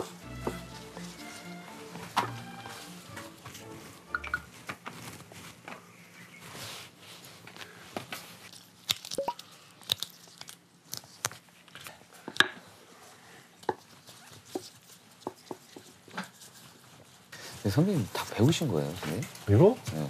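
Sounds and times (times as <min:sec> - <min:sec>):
hands working dough: 0:00.0 - 0:09.0, 0:13.6 - 0:20.0.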